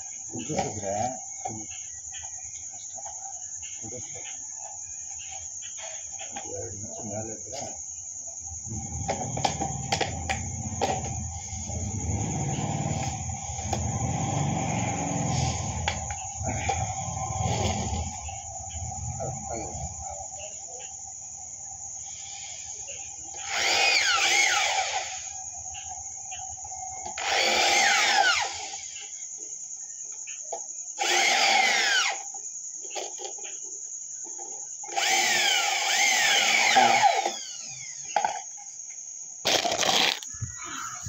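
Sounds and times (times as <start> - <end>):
crickets chirring: 0.0 - 41.0
electric drill bursts: 11.4 - 16.2, 22.1 - 25.4, 27.1 - 29.0, 31.0 - 32.3, 34.8 - 38.2.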